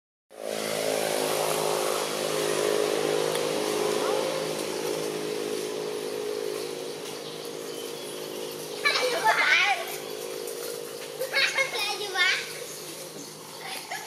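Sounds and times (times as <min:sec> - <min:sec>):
steady droning hum: 0:00.3 - 0:14.0.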